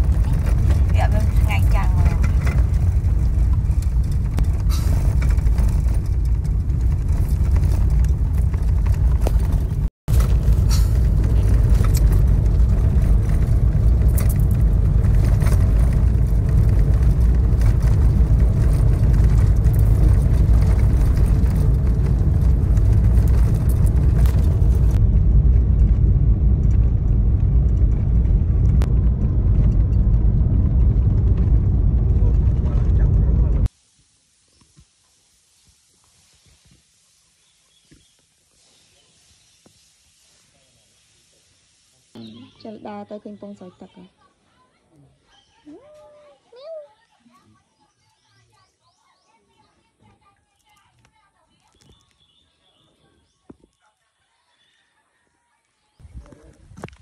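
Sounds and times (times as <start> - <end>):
car interior engine and road noise: 0.0 - 33.7.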